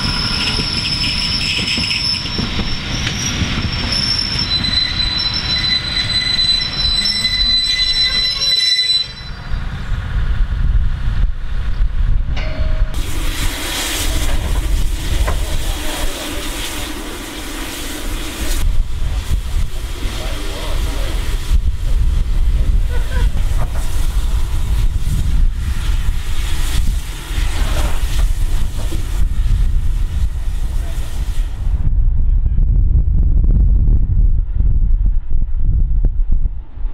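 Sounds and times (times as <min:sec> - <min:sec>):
train wheels squealing: 0:00.0 - 0:10.0
wheels rumbling on rail: 0:00.0 - 0:36.9
wind buffeting microphone: 0:09.3 - 0:16.0, 0:18.4 - 0:36.9.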